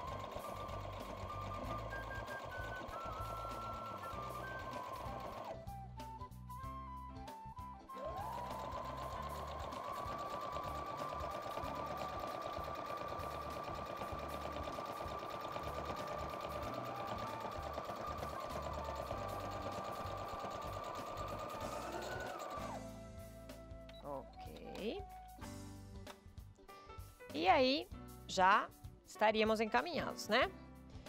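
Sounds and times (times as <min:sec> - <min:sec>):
sewing machine stitching: 0:00.0 - 0:05.6, 0:07.9 - 0:22.8.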